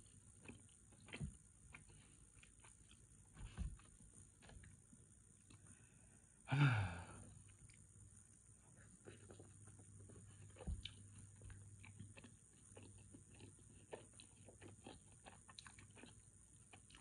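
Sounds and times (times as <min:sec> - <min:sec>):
wet chewing: 0:00.0 - 0:04.8, 0:09.0 - 0:17.0.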